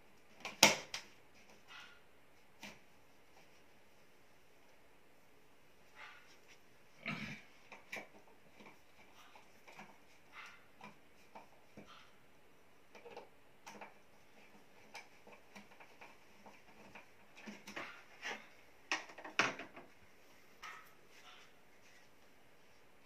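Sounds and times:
clicks and rustles of hands: 12.8 - 20.0.

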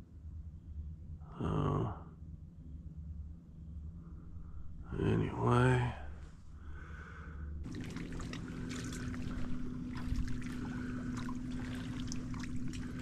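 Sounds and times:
low electric hum: 0.0 - 13.0
water lapping against a boat: 7.6 - 13.0
small splashy ticks: 7.7 - 13.0.

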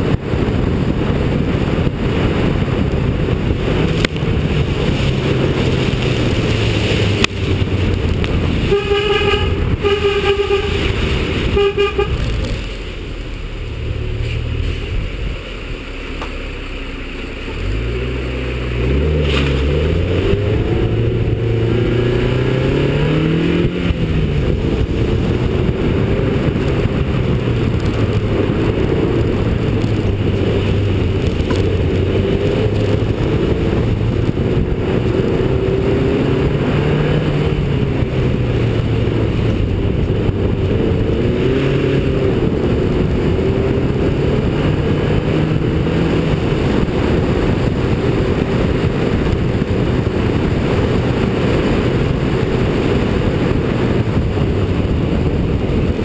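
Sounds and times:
car engine revving: 0.0 - 56.0
car horn tooting: 8.6 - 12.4.

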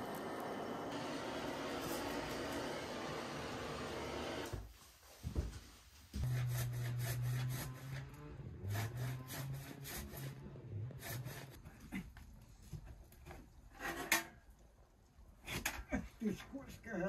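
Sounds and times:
blowtorch hissing: 0.0 - 4.7.

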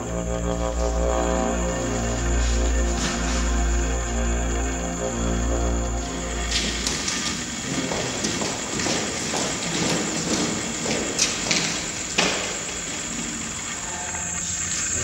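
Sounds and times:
boot footsteps on gritty floor: 6.4 - 13.3
taps and knocks: 6.5 - 12.8.

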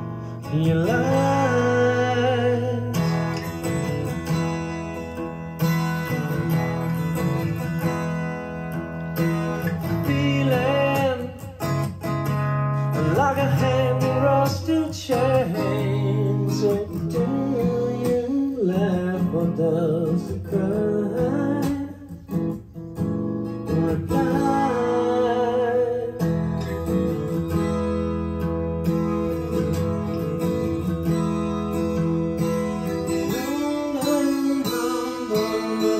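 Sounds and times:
strummed acoustic guitar: 0.0 - 35.9
person singing: 0.4 - 3.2, 9.5 - 11.9, 12.8 - 22.3, 23.8 - 26.4, 33.0 - 35.9.

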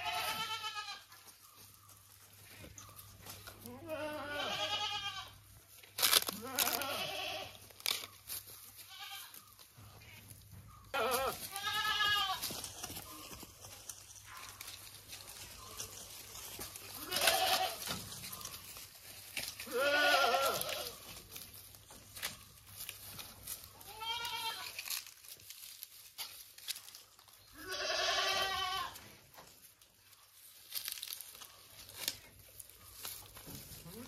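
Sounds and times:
goats bleating: 0.0 - 1.1, 3.6 - 5.4, 6.3 - 7.6, 10.9 - 12.5, 16.9 - 18.0, 19.6 - 21.2, 23.8 - 25.0, 27.6 - 29.0.

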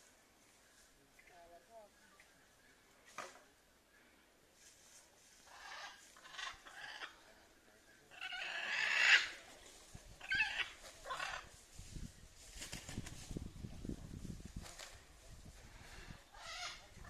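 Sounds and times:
macaws squawking: 5.4 - 7.2, 8.1 - 9.4, 10.2 - 11.5, 16.3 - 17.0.

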